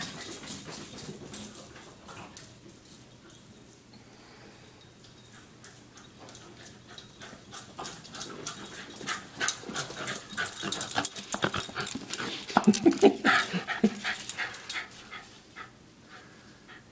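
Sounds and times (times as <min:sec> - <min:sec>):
dog panting: 0:06.3 - 0:16.9.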